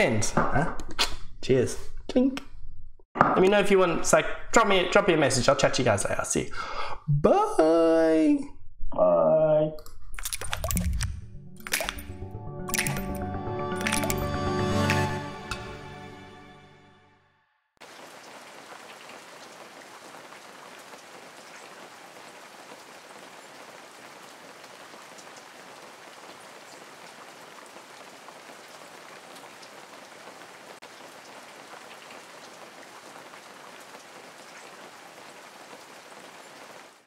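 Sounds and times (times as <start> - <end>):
rain hissing and pattering: 17.8 - 37.0.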